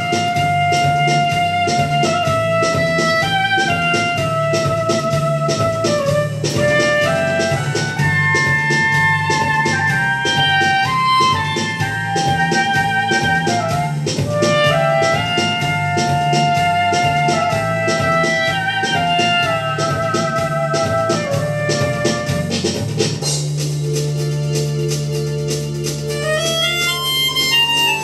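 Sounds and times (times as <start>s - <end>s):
soprano saxophone melody: 0.0s - 22.5s, 26.1s - 28.0s
backing track drum beat: 0.0s - 28.0s.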